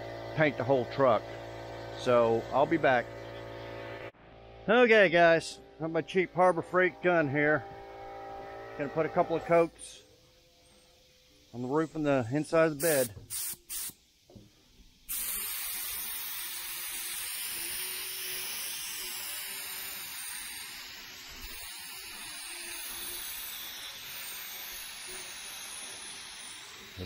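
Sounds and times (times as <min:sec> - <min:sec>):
paint spray gun hissing: 0:09.4 - 0:27.0.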